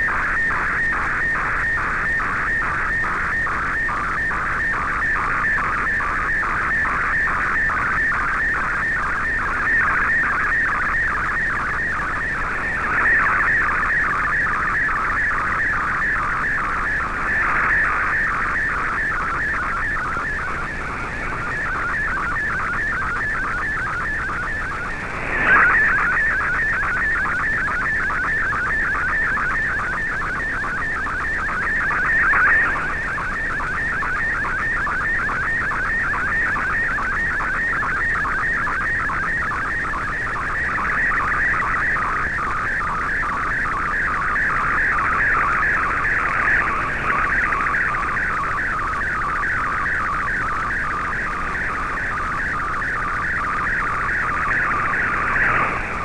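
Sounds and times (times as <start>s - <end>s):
warbling data tone: 4.8s - 29.6s, 30.3s - 35.2s, 40.6s - 56.0s
radio static hiss: 11.4s - 14.7s, 15.4s - 23.5s, 24.5s - 27.4s, 31.6s - 33.5s, 44.7s - 48.9s, 50.7s - 56.0s.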